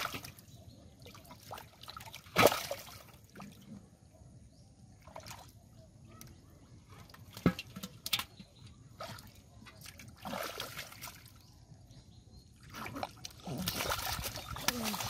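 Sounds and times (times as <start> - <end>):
hands splashing in muddy water: 9.0 - 11.4, 12.6 - 15.0.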